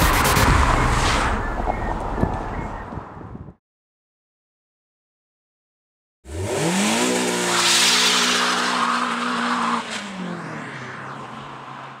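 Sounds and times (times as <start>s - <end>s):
car engine revving high: 6.3s - 10.8s.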